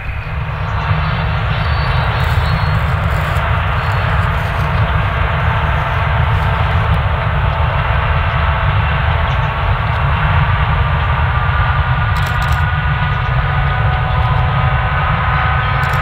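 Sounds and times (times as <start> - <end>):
faint rising whine: 0.0 - 8.4
diesel locomotives rumbling: 0.0 - 16.0.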